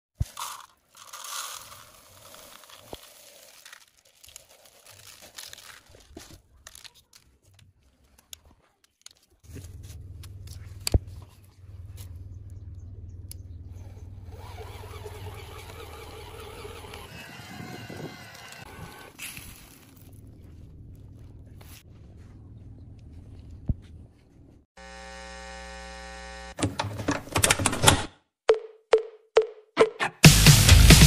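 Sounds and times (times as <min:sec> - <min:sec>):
grains pouring into toy truck: 0:00.2 - 0:05.8.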